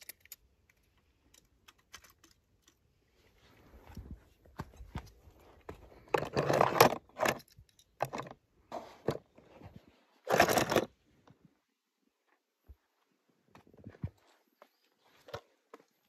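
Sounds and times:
toy cars clattering and scraping: 0:06.1 - 0:09.4, 0:10.2 - 0:11.0.

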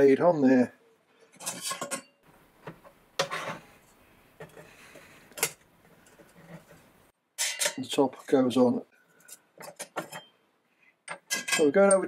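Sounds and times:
metal clinks and knocks: 0:01.3 - 0:02.2, 0:09.2 - 0:10.4, 0:11.0 - 0:12.0.

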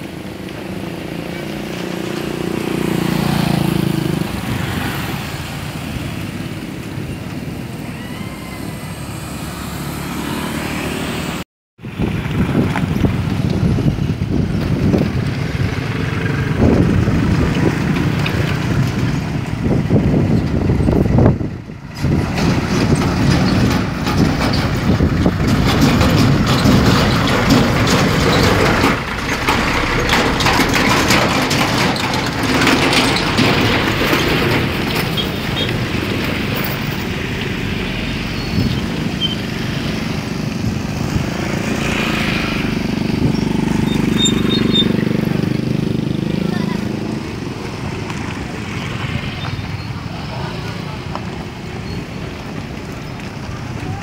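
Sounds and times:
motorcycle engines running: 0:00.0 - 0:54.0
truck engine and tyres rumbling: 0:00.0 - 0:54.0.

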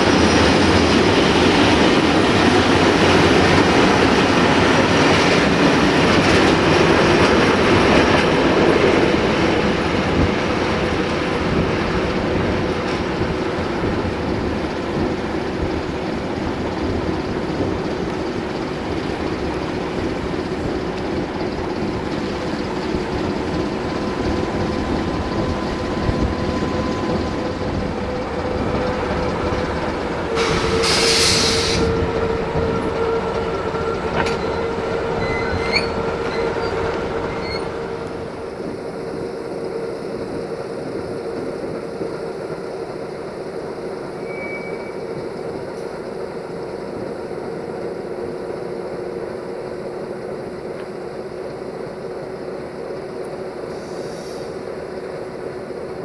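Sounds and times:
freight train rolling: 0:00.0 - 0:56.0
train wheels squealing: 0:12.0 - 0:38.1, 0:43.8 - 0:46.9, 0:53.7 - 0:54.7
air brake hiss: 0:30.4 - 0:31.9, 0:53.7 - 0:54.6.

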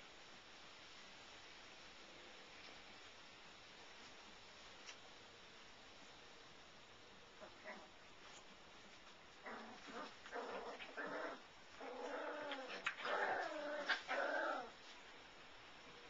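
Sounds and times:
puppy growling and whining: 0:09.4 - 0:14.8.

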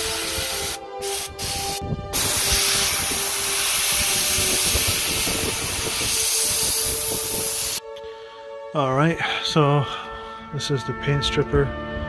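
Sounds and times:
steam cleaner jet hiss: 0:00.0 - 0:07.8.

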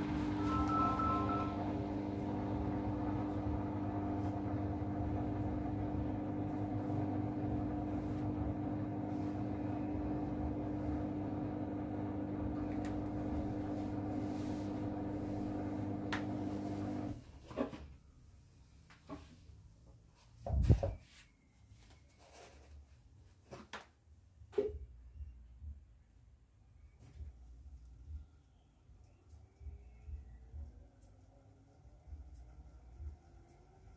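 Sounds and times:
washing machine humming: 0:00.0 - 0:17.3.

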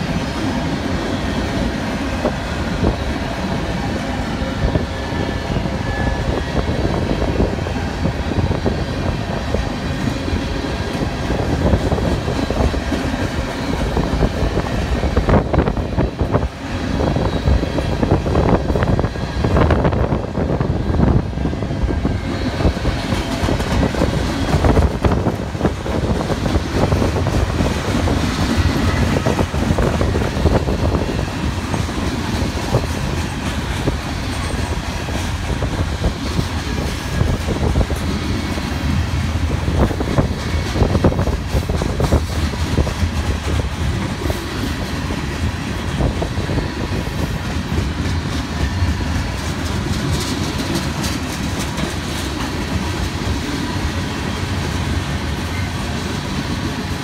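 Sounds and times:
train wheels rumbling on rails: 0:00.0 - 0:57.0
wheels clacking over rail joints: 0:22.3 - 0:57.0.

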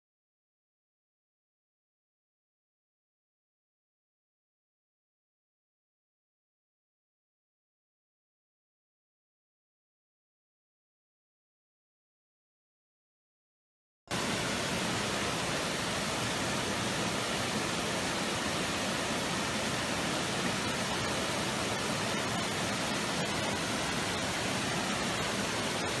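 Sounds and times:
stream water rushing: 0:14.1 - 0:26.0.

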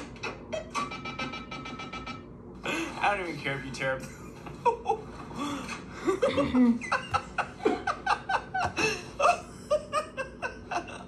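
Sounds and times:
person laughing: 0:04.0 - 0:11.0.

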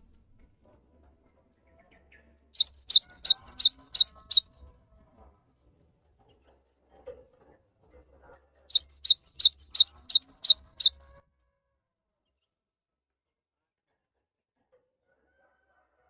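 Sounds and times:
bird singing high phrases: 0:02.6 - 0:04.5, 0:08.7 - 0:11.1.

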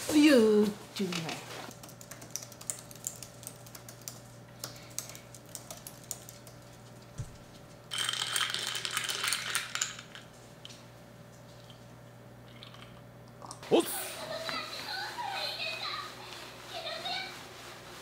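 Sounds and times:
keyboard typing clicks: 0:01.7 - 0:06.6.

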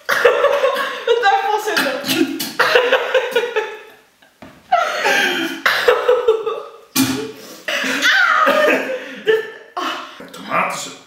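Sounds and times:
man and woman laughing: 0:00.0 - 0:01.3, 0:02.6 - 0:04.0, 0:07.8 - 0:10.0.

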